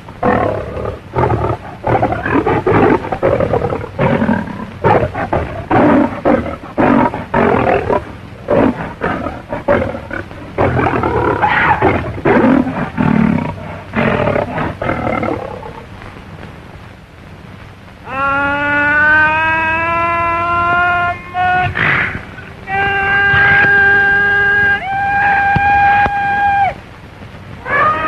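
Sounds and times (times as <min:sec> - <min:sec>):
lion growling and roaring: 0:00.2 - 0:15.8.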